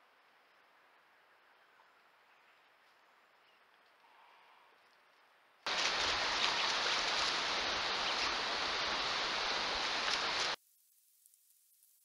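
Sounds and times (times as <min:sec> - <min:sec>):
rain falling on foliage: 0:05.7 - 0:12.0.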